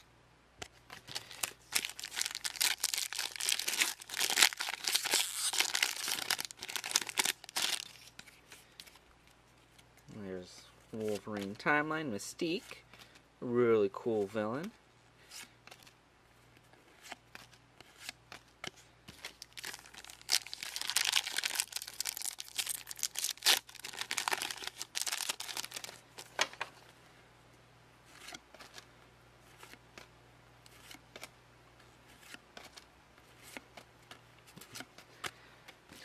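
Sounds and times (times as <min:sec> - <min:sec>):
foil wrapper tearing and crinkling: 0:01.1 - 0:08.1, 0:19.3 - 0:26.0
cards clicking and rustling: 0:28.1 - 0:28.9, 0:30.7 - 0:36.0.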